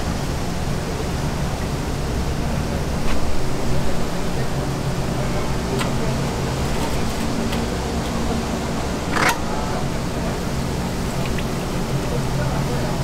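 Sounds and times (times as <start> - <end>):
kitchen equipment hum: 3.2 - 12.1
oil bubbling in fryer: 10.7 - 12.1.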